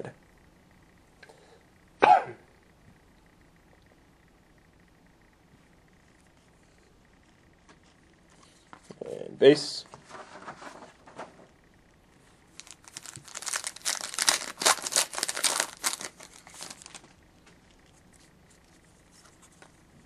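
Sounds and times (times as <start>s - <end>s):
card pack wrapper tearing: 12.6s - 17.1s.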